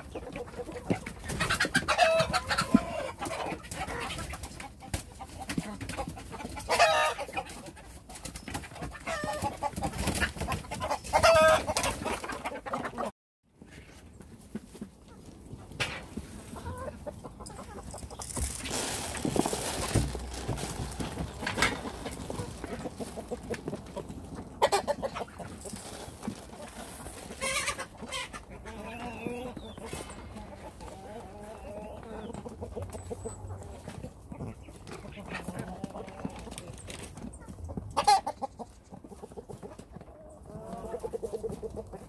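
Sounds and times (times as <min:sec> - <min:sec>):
hens clucking: 0:00.0 - 0:13.1, 0:13.7 - 0:42.0
rustling: 0:17.4 - 0:24.4, 0:25.4 - 0:27.9.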